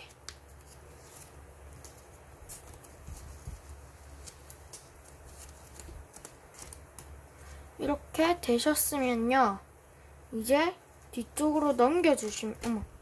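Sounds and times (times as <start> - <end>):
paper rustling: 0.0 - 7.6
low steady hum: 0.0 - 13.0.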